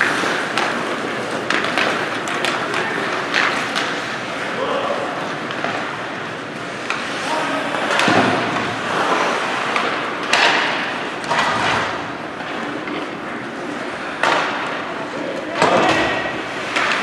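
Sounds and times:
sticks and puck knocking: 0.0 - 4.1, 9.6 - 17.0
skates scraping on ice: 0.0 - 17.0
faint voices in arena: 4.3 - 5.7, 7.1 - 8.8, 13.0 - 16.6.

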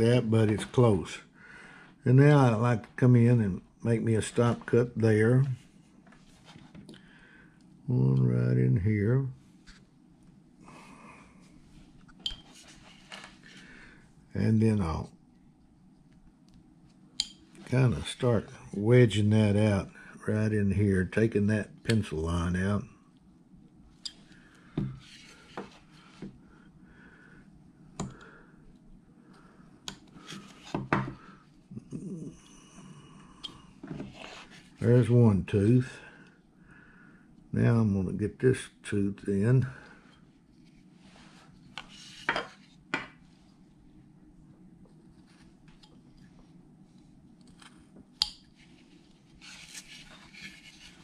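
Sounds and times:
knife scraping wood: 49.4 - 51.0.

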